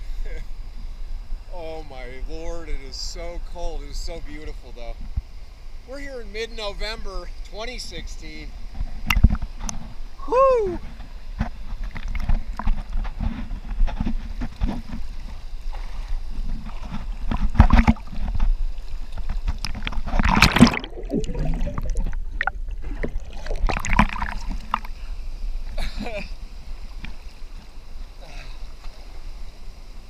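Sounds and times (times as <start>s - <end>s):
water splashing against camera: 8.8s - 9.8s, 10.8s - 25.0s
man exclaiming: 10.2s - 10.8s
low water rush: 14.4s - 30.0s
loud splash burst: 20.2s - 24.6s.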